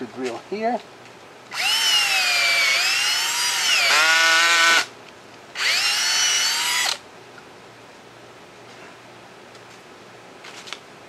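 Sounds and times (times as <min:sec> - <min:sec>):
power drill boring into wood: 0:01.5 - 0:04.9, 0:05.6 - 0:07.0.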